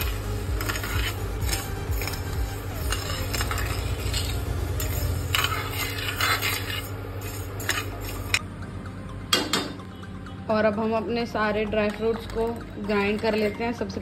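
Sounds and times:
spatula scraping gritty sugar in pan: 0.0s - 8.4s
steady low hum: 0.0s - 13.9s.

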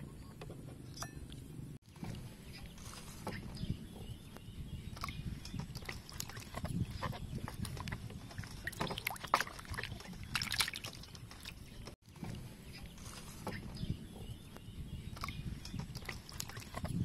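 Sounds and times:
water splashing in a metal basin: 7.7s - 11.6s.

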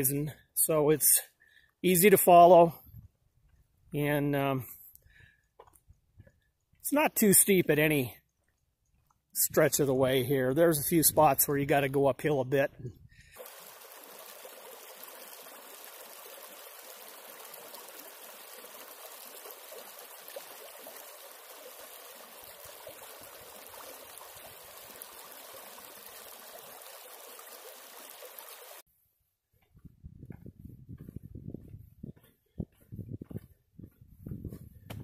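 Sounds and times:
creek running over rocks: 13.3s - 28.8s.

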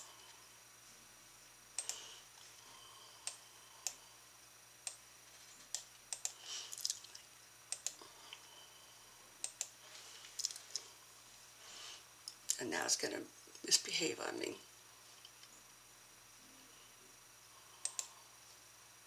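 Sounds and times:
keyboard and mouse clicks: 5.7s - 7.1s.

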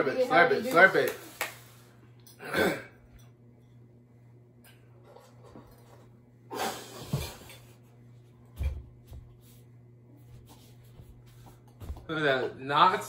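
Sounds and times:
woman coughing harshly: 2.4s - 3.0s.

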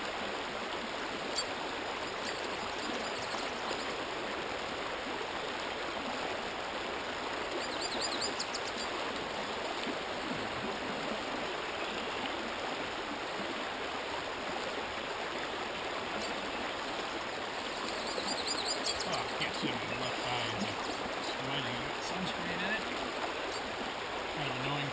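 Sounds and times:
creek water rushing: 0.0s - 24.9s
bird singing high phrase: 7.6s - 9.0s, 17.7s - 21.0s.

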